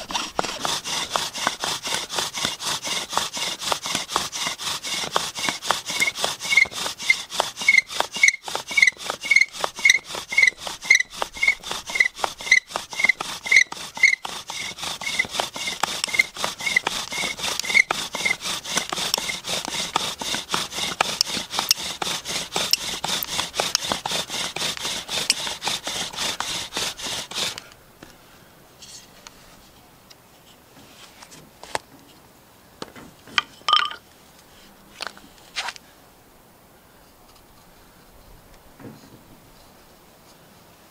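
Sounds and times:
bow drill squeaks: 0.0s - 27.6s
bow drill spindle grinding wood: 0.0s - 27.7s.

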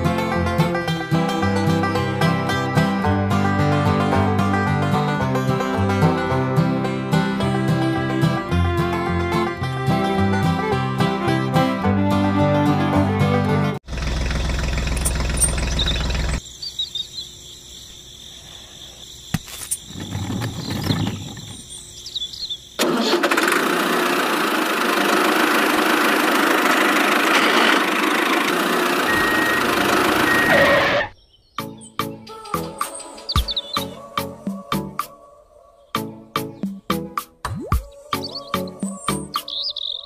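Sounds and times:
motor running: 13.8s - 16.4s, 22.8s - 31.0s.

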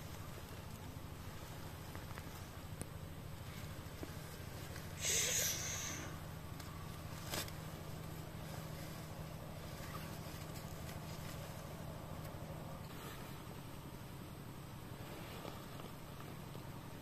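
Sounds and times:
steady low hum: 0.0s - 17.0s
feathers rustling: 3.3s - 13.5s.

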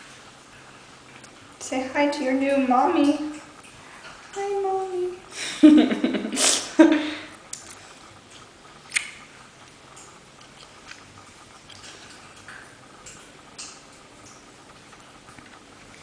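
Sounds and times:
woman's voice: 1.6s - 3.4s, 4.4s - 5.2s.

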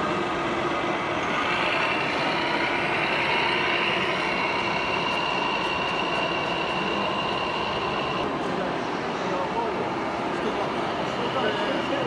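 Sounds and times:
radio-controlled truck whine: 0.0s - 8.4s
busy hall noise: 0.0s - 12.0s.

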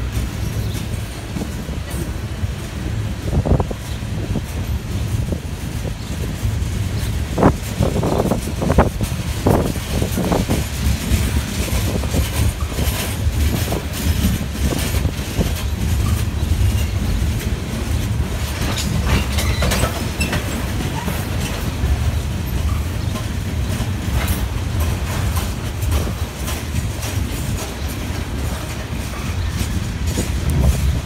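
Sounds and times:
freight train rumbling: 0.0s - 31.0s
wheels clacking over rail joints: 0.0s - 31.0s
wheel squeals: 11.6s - 17.5s, 18.2s - 24.5s.

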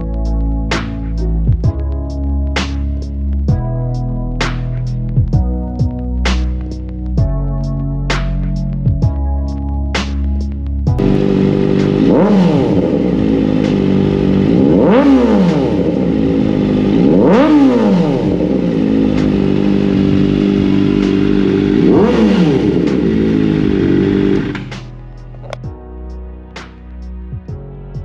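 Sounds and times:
motorcycle engine idling and revving: 0.0s - 7.4s, 10.0s - 25.7s.

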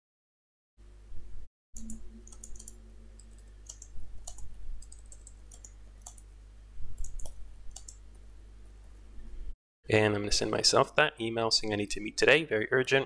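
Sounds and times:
keyboard keys clicking: 1.8s - 6.3s, 7.0s - 8.1s.

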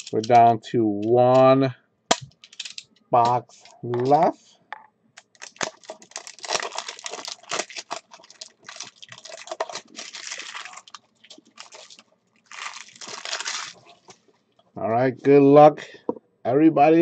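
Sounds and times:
plastic shrink-wrap crinkling and tearing: 0.0s - 0.4s, 5.3s - 14.2s.

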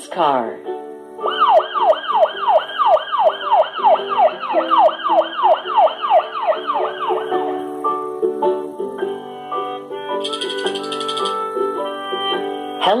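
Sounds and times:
faint background music: 0.0s - 13.0s
police siren yelping: 1.3s - 7.5s, 10.2s - 11.5s.

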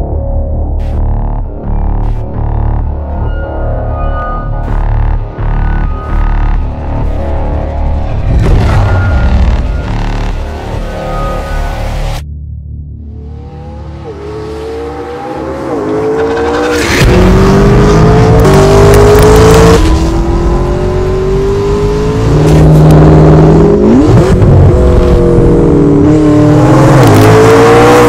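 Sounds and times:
car engine accelerating hard: 13.2s - 28.0s.

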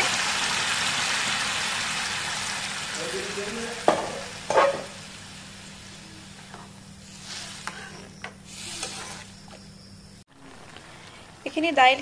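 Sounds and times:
food sizzling and bubbling: 0.0s - 12.0s
steel ladle clinking on pan: 3.9s - 4.9s.

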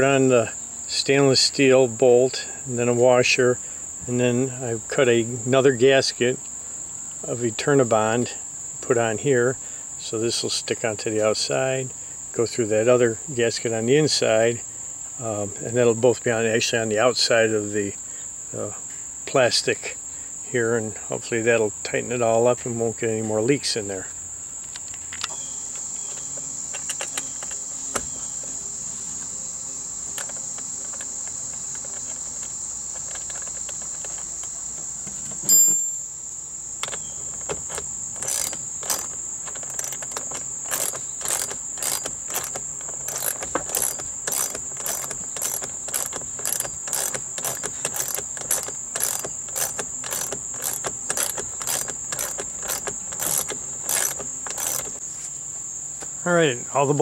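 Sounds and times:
crickets chirring: 0.0s - 57.0s
socket ratchet clicking: 24.7s - 27.6s, 30.1s - 34.6s, 36.8s - 55.0s.

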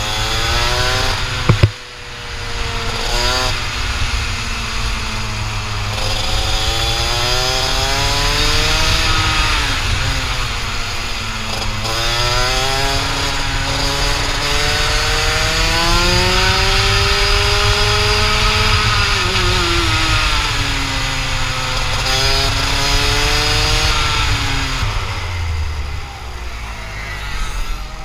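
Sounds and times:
two-stroke kart engine revving: 0.0s - 28.0s
wind rushing over microphone: 13.1s - 26.3s.

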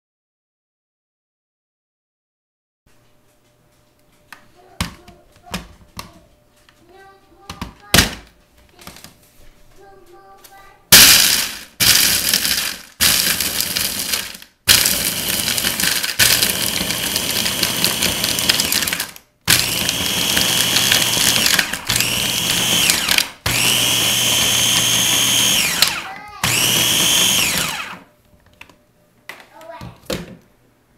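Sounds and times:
food processor motor: 11.0s - 28.1s.

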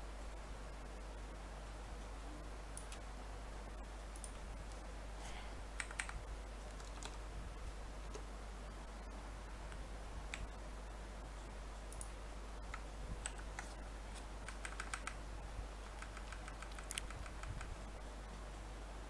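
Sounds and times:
keyboard and mouse clicks: 4.1s - 4.8s, 5.8s - 7.2s, 10.3s - 10.6s, 11.9s - 13.8s, 14.4s - 15.2s, 15.8s - 17.8s.

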